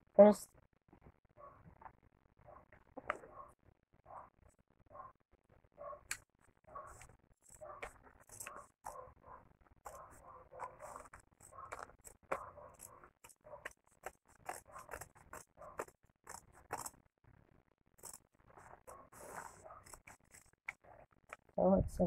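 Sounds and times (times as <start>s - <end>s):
scissors snipping fabric: 9.9s - 17.0s, 18.0s - 18.2s, 19.0s - 21.4s.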